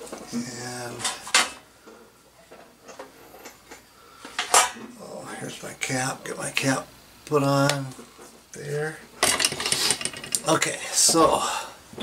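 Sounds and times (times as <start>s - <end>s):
hard objects clacking together: 9.2s - 10.5s.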